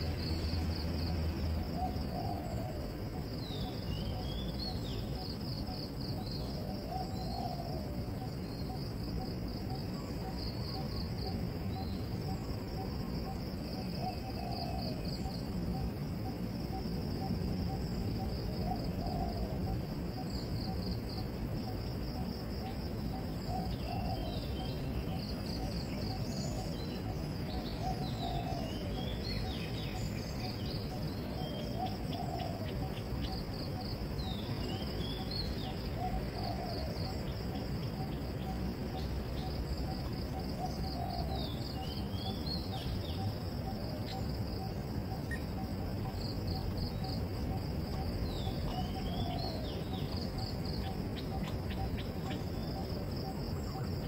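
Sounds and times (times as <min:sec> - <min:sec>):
insects chirring: 0:00.0 - 0:54.0
birds gliding calls: 0:22.6 - 0:54.0.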